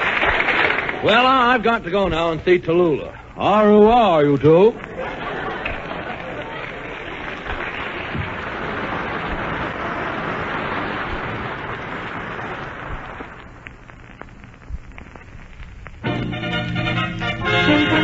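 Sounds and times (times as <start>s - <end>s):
audience applauding: 0.0s - 2.0s, 4.6s - 13.5s
orchestra playing: 16.0s - 18.0s.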